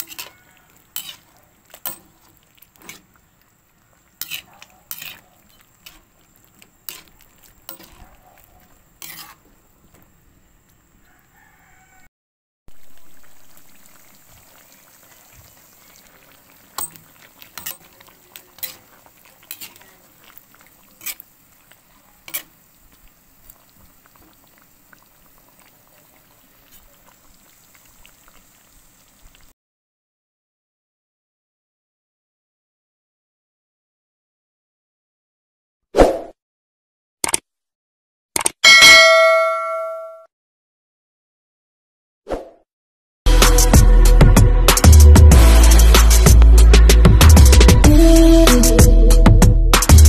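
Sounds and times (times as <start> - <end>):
low bubbling hiss of simmering: 0.0 - 12.0, 12.7 - 29.5
metal ladle clinking against pan: 1.0 - 2.2, 16.8 - 18.0.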